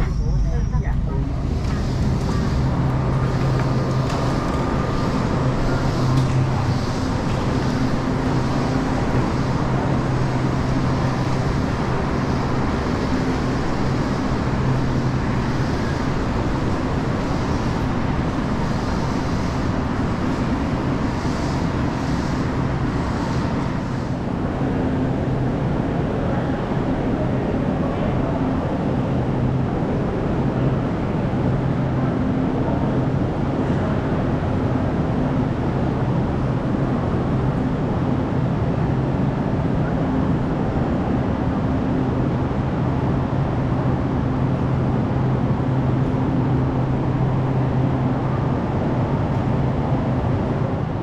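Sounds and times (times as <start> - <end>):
rumbling noise: 0.0 - 7.9
low mechanical hum: 0.0 - 51.0.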